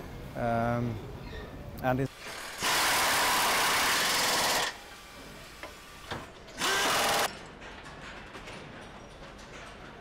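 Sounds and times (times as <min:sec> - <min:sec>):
power tool whining: 0:05.6 - 0:07.3.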